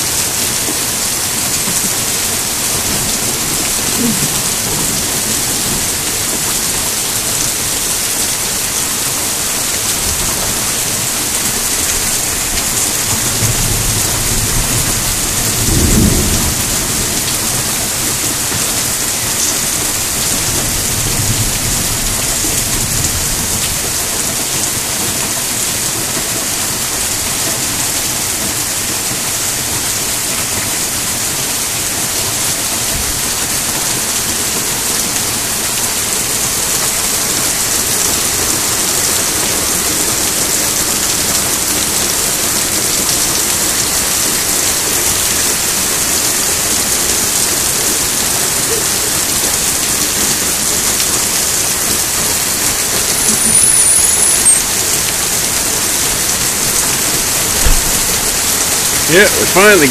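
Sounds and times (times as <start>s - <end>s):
heavy rain on pavement: 0.0s - 59.9s
rain drumming on plastic lid: 0.0s - 59.9s
high squeak: 53.1s - 54.7s.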